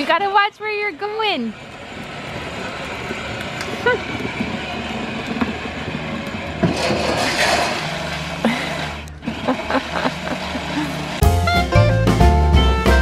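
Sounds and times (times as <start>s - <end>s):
plastic wheels rumbling on concrete: 1.7s - 11.2s.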